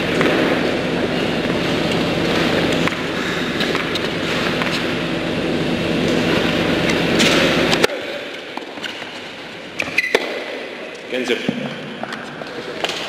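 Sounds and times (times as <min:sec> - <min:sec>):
rumbling hum: 0:00.0 - 0:09.8
racket striking ball: 0:02.8 - 0:04.8, 0:09.8 - 0:10.7
shoe squeaks: 0:09.8 - 0:10.3.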